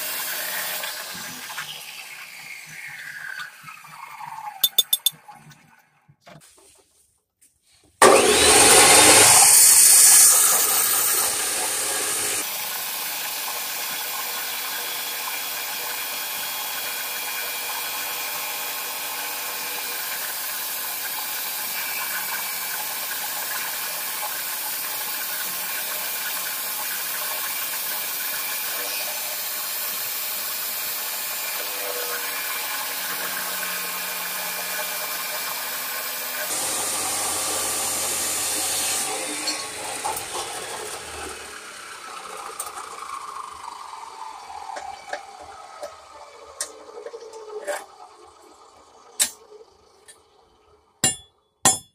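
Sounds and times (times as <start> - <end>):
chop saw grinding through steel: 4.6 - 5.1, 8.0 - 23.2, 27.6 - 42.9, 49.2 - 49.4, 51.0 - 51.9
saw motor whine spinning down: 8.0 - 12.4, 39.2 - 47.0.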